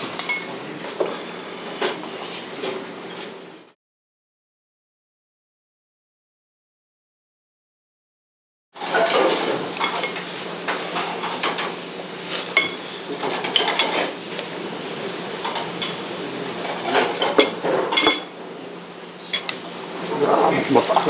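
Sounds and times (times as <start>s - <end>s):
cutlery clinking on plates: 0.1s - 1.2s, 8.8s - 10.2s, 12.5s - 14.1s, 15.4s - 16.0s, 16.6s - 18.3s, 19.3s - 19.6s.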